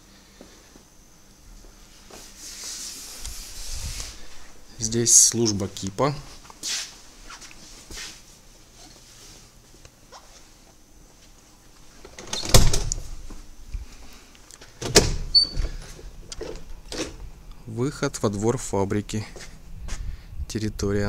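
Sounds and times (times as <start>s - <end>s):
door opening and shutting: 12.0s - 13.2s, 14.7s - 17.2s.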